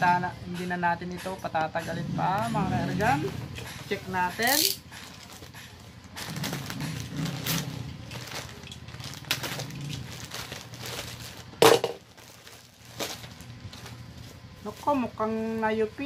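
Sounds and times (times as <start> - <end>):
plastic pouch crinkling: 4.8 - 14.9.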